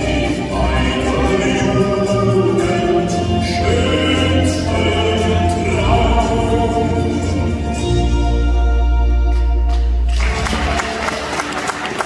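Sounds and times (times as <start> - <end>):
women singing backing vocals: 0.0 - 7.4
man singing lead: 0.0 - 7.8
acoustic guitar: 0.0 - 11.2.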